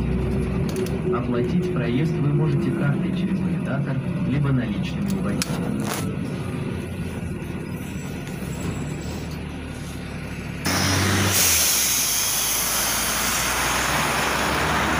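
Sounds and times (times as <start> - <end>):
bus engine and road rumble: 0.0 - 14.9
bus passing by: 0.0 - 14.9
loud rushing hiss: 10.7 - 13.9.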